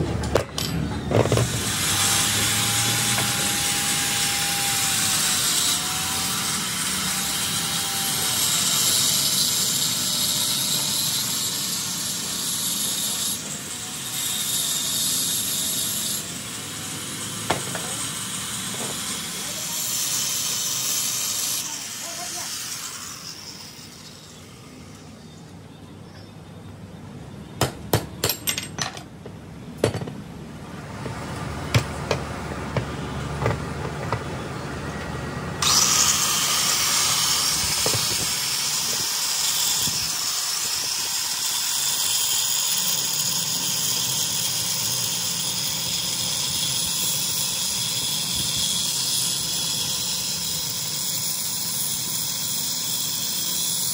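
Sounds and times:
angle grinder cutting steel: 0:00.2 - 0:25.0, 0:35.6 - 0:53.9
metal knocks and clinks: 0:28.2 - 0:29.1.

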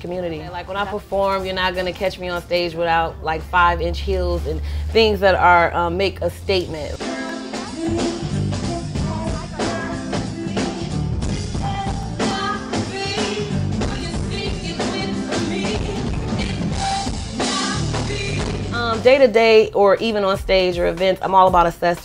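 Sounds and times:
woman singing: 0:00.0 - 0:22.0
guitars: 0:00.4 - 0:20.3
drum kit: 0:06.3 - 0:22.0.

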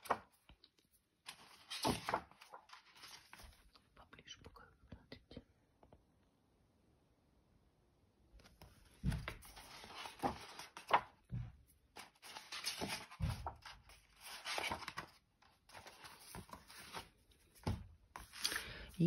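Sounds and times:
book pages rustling: 0:00.0 - 0:03.8, 0:08.4 - 0:19.0.

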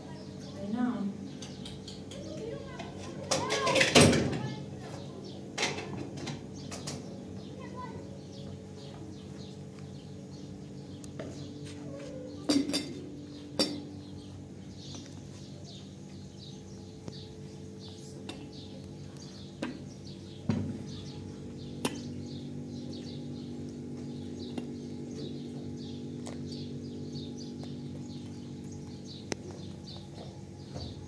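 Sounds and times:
birds chirping: 0:00.0 - 0:31.0
steady low hum: 0:00.0 - 0:31.0.

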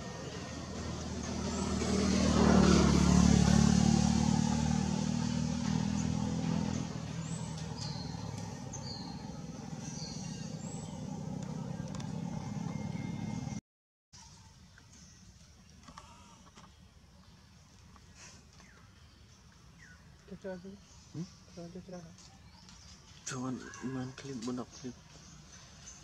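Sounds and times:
vehicle engine passing: 0:00.0 - 0:13.6.

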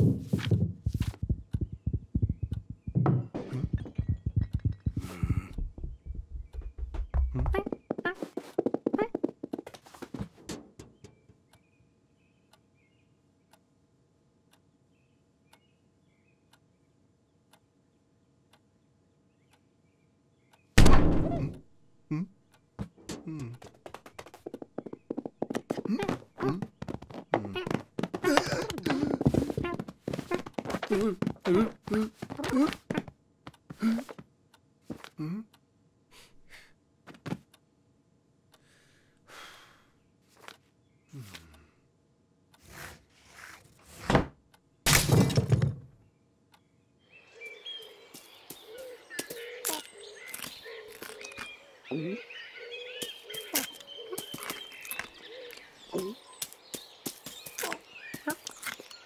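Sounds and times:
clock ticking: 0:00.8 - 0:08.2
faint bird chirps: 0:01.2 - 0:08.4, 0:46.0 - 0:59.0.

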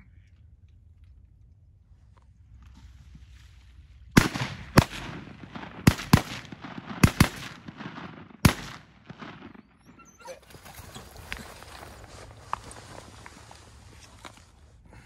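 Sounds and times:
shotgun shots with echo: 0:04.2 - 0:09.8.

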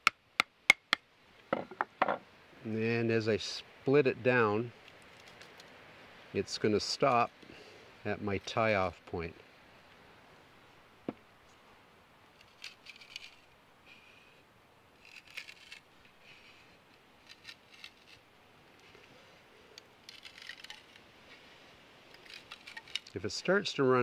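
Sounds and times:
wood fibres crackling as split: 0:04.8 - 0:05.7, 0:12.4 - 0:13.6, 0:15.0 - 0:16.1, 0:16.9 - 0:18.3, 0:19.8 - 0:21.4, 0:22.0 - 0:23.2
sharp wood crack: 0:20.0 - 0:21.0, 0:22.1 - 0:23.2.

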